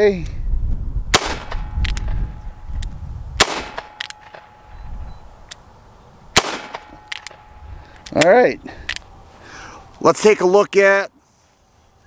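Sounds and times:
revolver gunshots: 0:01.1 - 0:02.2, 0:03.4 - 0:04.7, 0:06.4 - 0:07.5.

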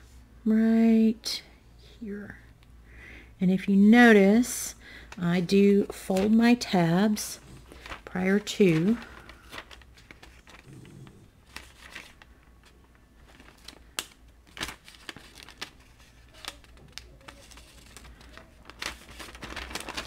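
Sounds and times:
paper crinkling and rustling: 0:05.1 - 0:20.0.

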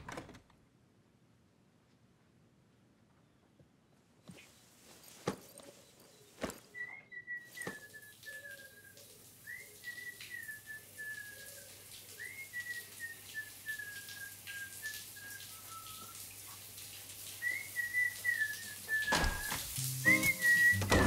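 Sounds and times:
person whistling a tune: 0:17.4 - 0:21.0.

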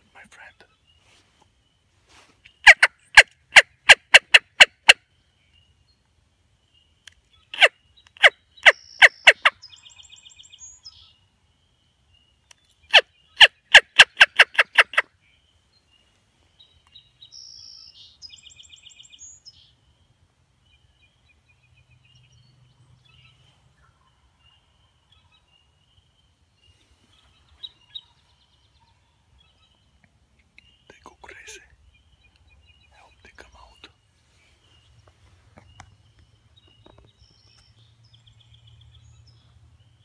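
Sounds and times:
faint songbird singing: 0:00.0 - 0:40.0
turkey call yelps: 0:02.6 - 0:05.0, 0:12.9 - 0:15.1.

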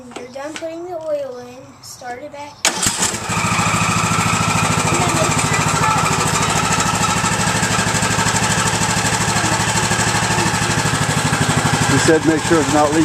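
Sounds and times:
riding mower engine running: 0:02.6 - 0:13.0.

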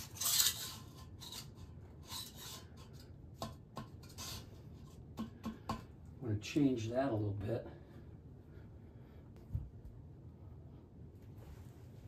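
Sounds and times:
toilet bowl scraping on floor: 0:00.0 - 0:05.0.

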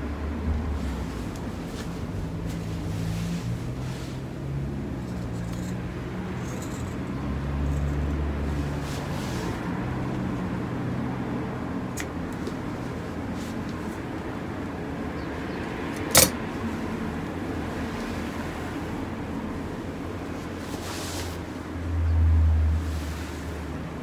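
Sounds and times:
scissors set down click: 0:16.0 - 0:16.4
low rumble and hum: 0:21.5 - 0:24.0.

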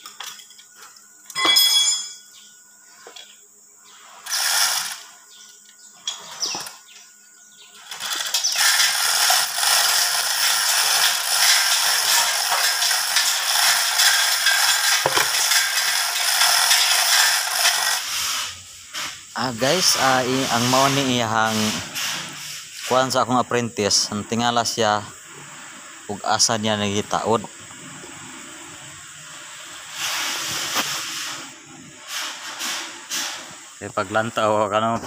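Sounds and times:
metallic clink: 0:01.3 - 0:02.4
chain rattling through hoist: 0:04.3 - 0:05.0, 0:07.8 - 0:18.2.

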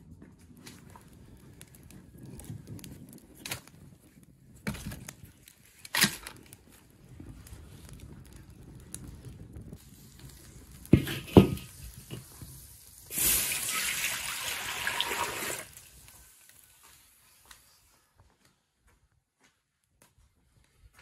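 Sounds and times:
wood fire crackling: 0:00.0 - 0:18.4
water pouring into a wok: 0:13.1 - 0:16.4.

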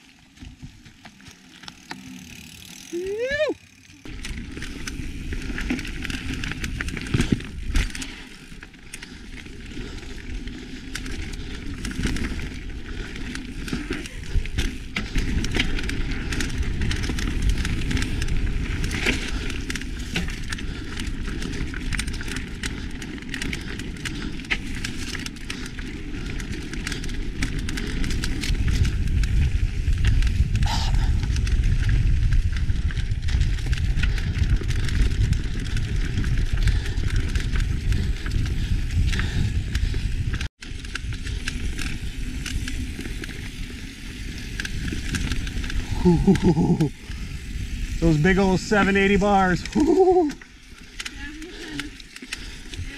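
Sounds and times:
bike rattling clicks: 0:00.3 - 0:52.9
wind buffeting microphone: 0:27.3 - 0:40.5.

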